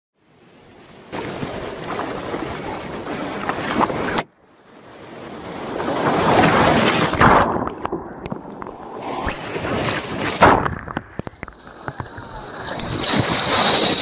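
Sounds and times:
rough sea splashing against kayak: 0.2 - 14.0
breaking wave washing over bow: 1.0 - 4.2, 5.0 - 11.0.

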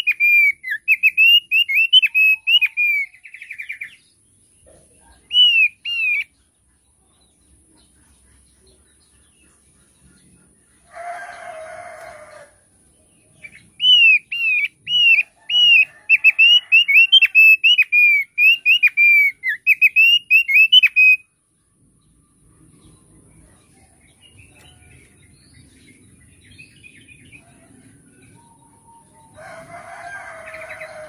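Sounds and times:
bird singing whistled notes: 0.0 - 4.0, 5.3 - 6.3, 13.4 - 21.3.

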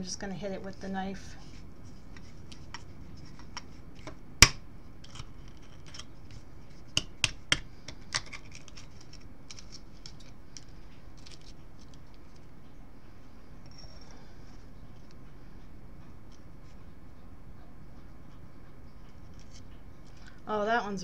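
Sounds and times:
knife cracking egg shell: 3.5 - 6.1.

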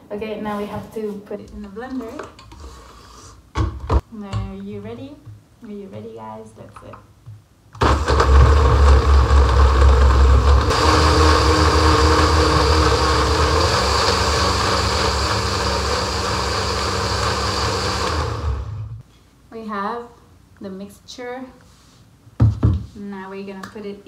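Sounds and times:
blender motor chopping fruit: 7.8 - 19.0.

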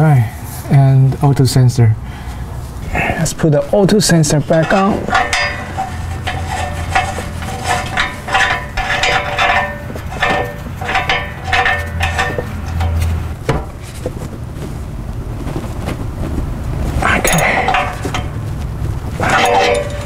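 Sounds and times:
metallic clinks and scrapes: 4.3 - 14.2, 16.9 - 20.0.

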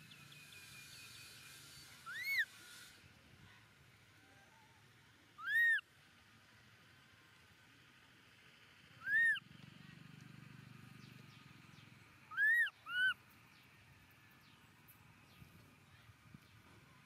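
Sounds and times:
baby monkey squealing: 2.0 - 2.5, 5.4 - 5.8, 9.0 - 9.4, 12.3 - 13.2.

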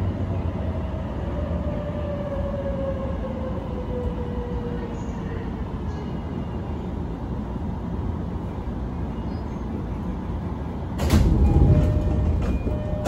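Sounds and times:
train car low hum: 0.0 - 13.0
train doors sliding open: 10.8 - 13.0.

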